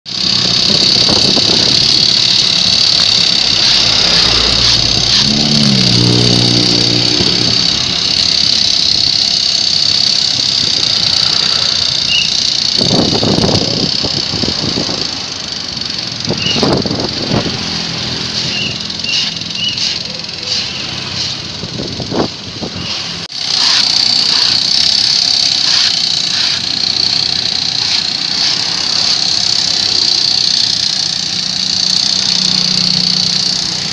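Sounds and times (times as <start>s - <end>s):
brush cutters whining: 0.0s - 33.9s
motorcycles passing: 0.1s - 24.9s, 25.5s - 33.9s
cars passing: 3.6s - 8.0s, 14.4s - 23.3s.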